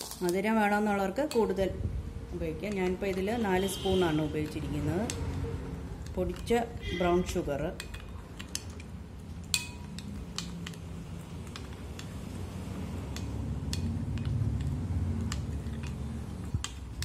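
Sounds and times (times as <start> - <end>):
spoon stirring in glass bowl: 6.0 - 17.0.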